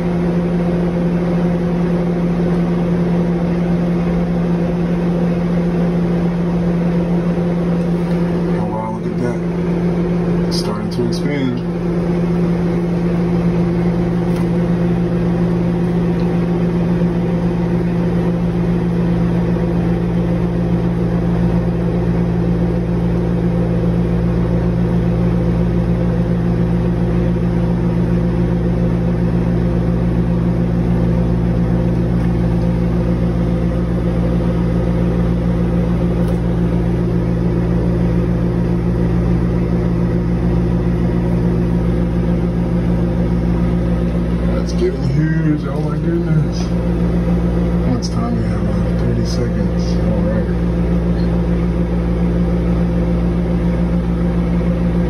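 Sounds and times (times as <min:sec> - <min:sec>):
microwave oven humming: 0:00.0 - 0:55.0.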